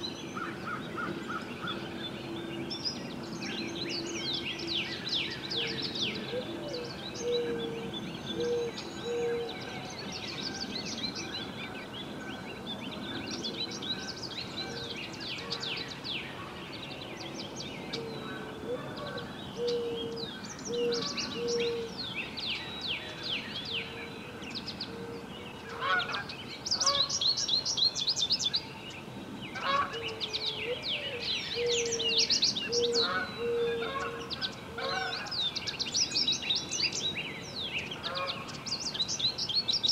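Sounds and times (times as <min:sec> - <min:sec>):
songbirds singing and chirping: 0:00.0 - 0:39.9
low hooting bird call: 0:05.5 - 0:09.9, 0:17.9 - 0:22.0, 0:29.6 - 0:35.3.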